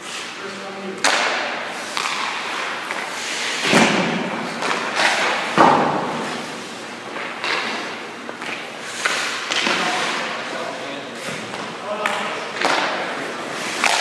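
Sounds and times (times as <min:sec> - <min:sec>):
hockey pucks thudding off pads: 0:01.0 - 0:10.4, 0:11.2 - 0:14.0
skate blades scraping ice: 0:01.0 - 0:10.5, 0:12.6 - 0:14.0.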